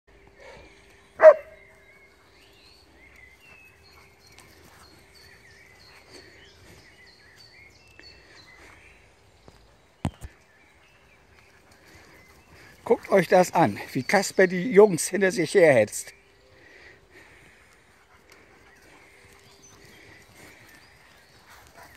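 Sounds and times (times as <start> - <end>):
birds singing faintly: 0.1 - 21.9
dog barking: 1.2 - 1.6.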